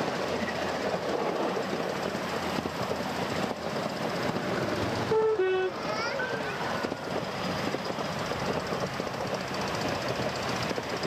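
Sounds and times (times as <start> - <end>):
railway carriage wheels rattling: 0.0 - 11.0
locomotive horn toot: 5.1 - 5.8.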